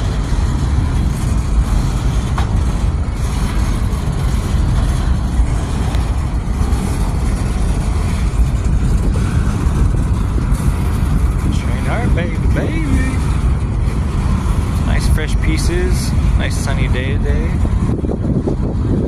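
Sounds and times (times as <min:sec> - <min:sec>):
freight train wheels rumbling on rails: 0:00.0 - 0:19.0.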